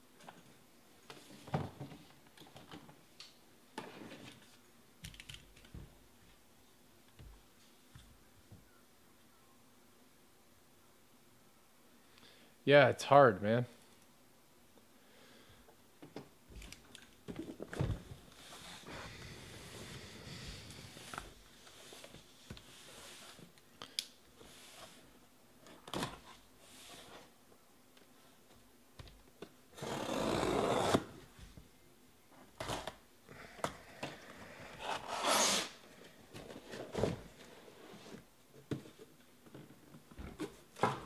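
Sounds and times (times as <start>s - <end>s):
cutter slitting packing tape: 29.8s - 31.1s, 34.9s - 35.8s.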